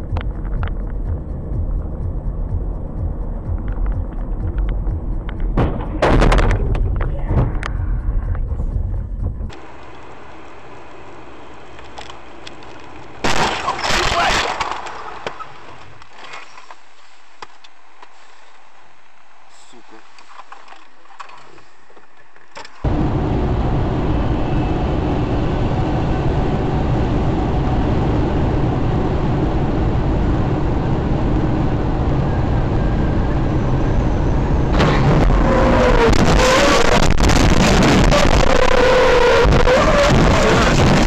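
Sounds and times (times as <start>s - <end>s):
car road and engine noise: 0.0s - 41.0s.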